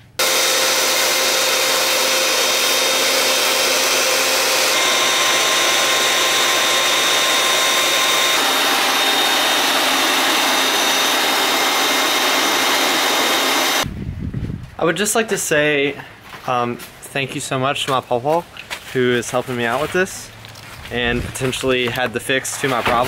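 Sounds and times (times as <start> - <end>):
belt sander sanding wood: 0.0 - 13.9.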